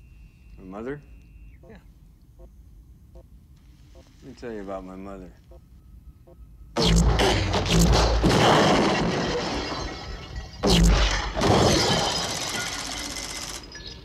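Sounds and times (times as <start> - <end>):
crashing debris: 7.2 - 13.8.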